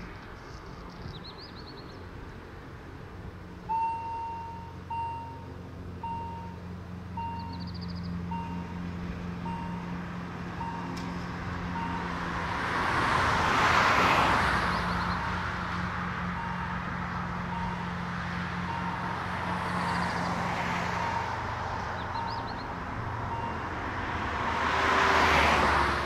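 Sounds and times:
crossing warning tone: 3.6 - 12.4, 16.2 - 23.9
vehicle passing: 6.8 - 26.0.

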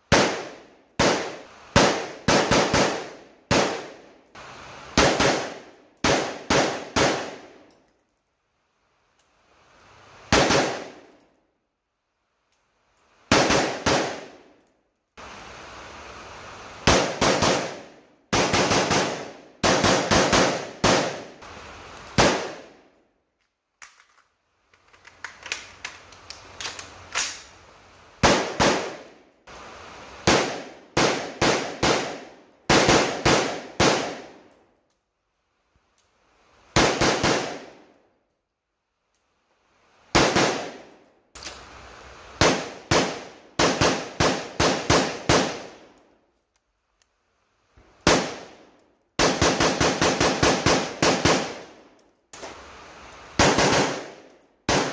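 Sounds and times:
rifle shots with echo: 0.1 - 4.1, 5.0 - 7.6, 10.3 - 11.1, 13.3 - 14.4, 16.8 - 21.4, 22.2 - 22.8, 28.2 - 29.1, 30.2 - 34.5, 36.8 - 37.8, 40.1 - 40.9, 42.4 - 45.9, 48.0 - 51.8, 53.4 - 54.9.

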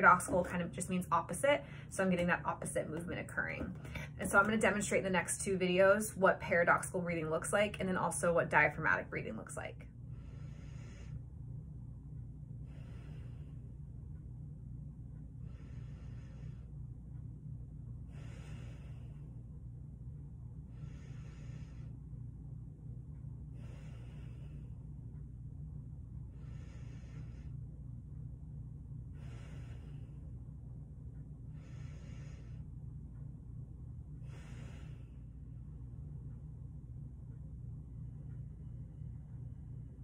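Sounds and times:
low hum: 0.0 - 40.0
woman breathing: 1.6 - 2.0, 3.0 - 4.3, 9.9 - 11.6, 12.4 - 14.3, 15.1 - 17.3, 17.9 - 19.8, 20.5 - 22.4, 23.2 - 28.3, 28.9 - 32.9, 34.0 - 35.8.

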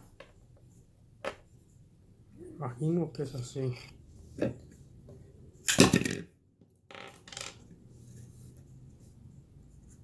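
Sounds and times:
metal parts clattering on wooden table: 5.7 - 6.3, 6.9 - 7.6.

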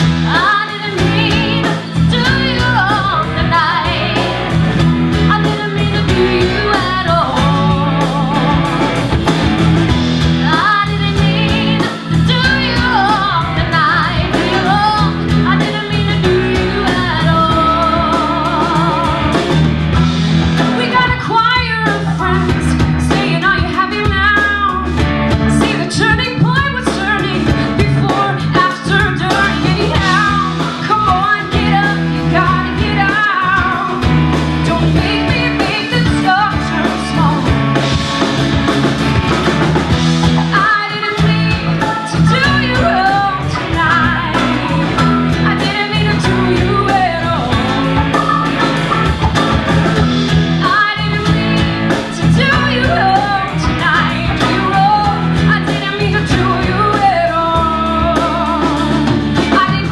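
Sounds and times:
woman singing: 0.0 - 9.2, 10.2 - 19.6, 20.6 - 38.0, 40.3 - 49.3, 50.5 - 59.9
live rock band playing: 0.0 - 59.9.

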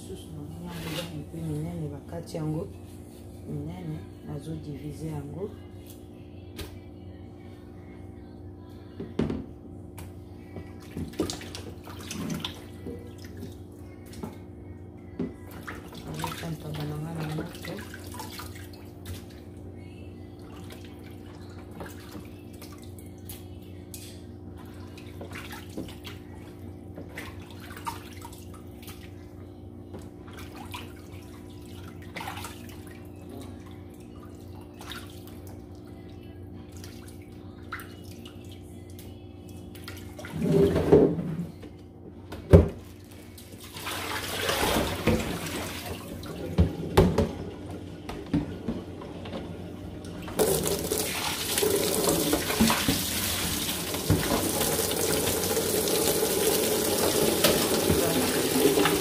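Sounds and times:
steady low hum: 0.0 - 40.4
tap water rushing: 44.0 - 59.0.

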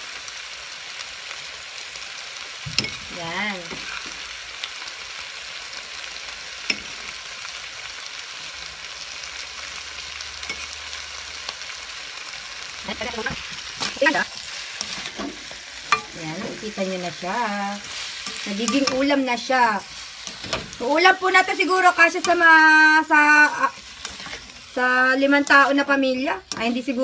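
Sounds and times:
food sizzling in a pan: 0.0 - 27.0
spoon scraping against pan: 10.4 - 10.8, 14.4 - 16.8, 17.6 - 27.0.

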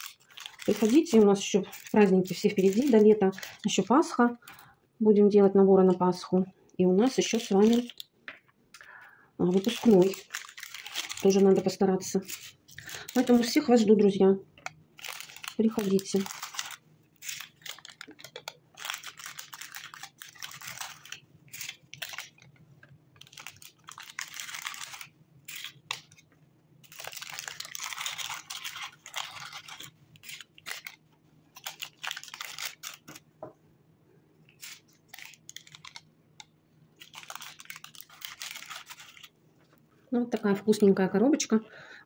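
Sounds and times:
paper candy cups crinkling: 0.0 - 4.7, 7.0 - 8.1, 8.8 - 33.3, 34.5 - 39.4, 40.2 - 41.1.

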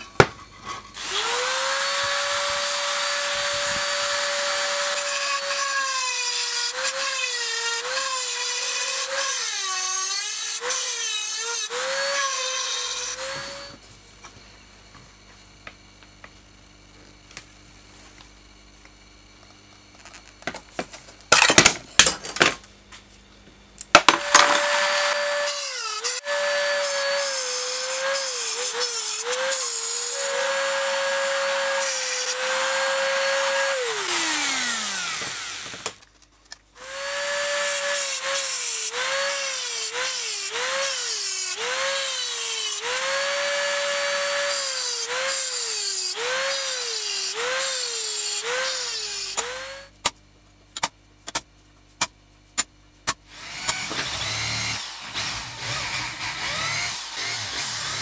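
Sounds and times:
rotary tool grinding metal: 0.6 - 13.8, 24.1 - 36.0, 53.3 - 58.0.

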